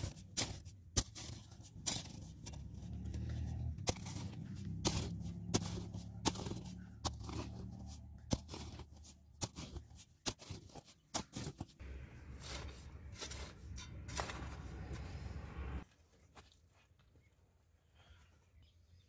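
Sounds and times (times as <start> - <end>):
hoe chopping into dry soil: 0.0 - 15.0.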